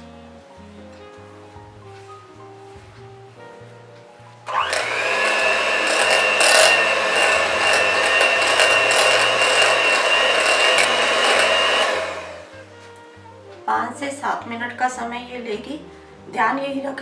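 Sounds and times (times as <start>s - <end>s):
electric hand mixer whining: 4.5s - 12.5s.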